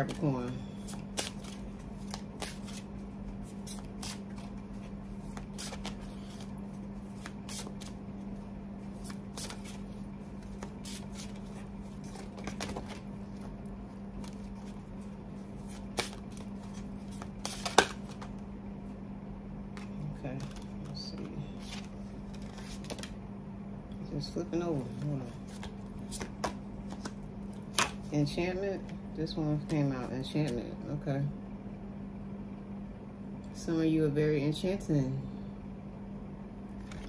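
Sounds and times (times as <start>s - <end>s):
cards being shuffled: 0.0s - 8.0s, 8.8s - 13.5s, 14.2s - 18.4s, 19.8s - 23.2s, 24.8s - 28.1s, 36.8s - 37.0s
cards snapping: 15.7s - 18.3s.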